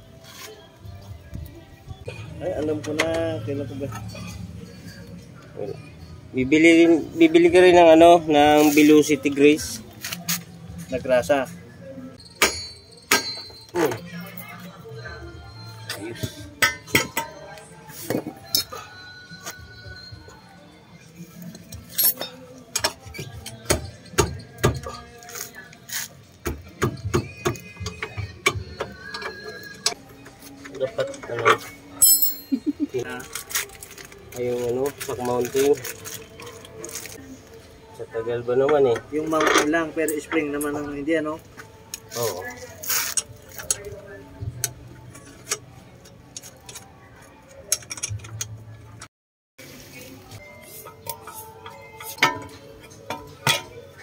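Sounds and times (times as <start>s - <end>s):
metal tool clicks and knocks: 47.5s - 48.6s.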